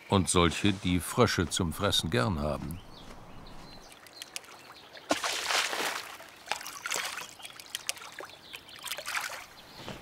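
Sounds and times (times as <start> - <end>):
water trickles and drips: 3.9 - 9.6
frog splashing into water: 5.0 - 8.2.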